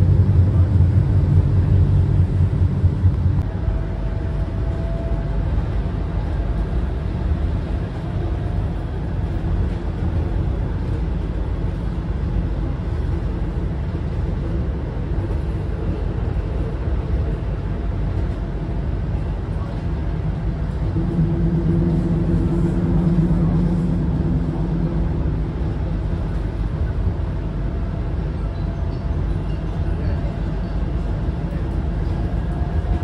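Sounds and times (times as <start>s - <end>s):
tram wheels rumbling: 0.0s - 33.0s
faint whine: 20.6s - 27.8s.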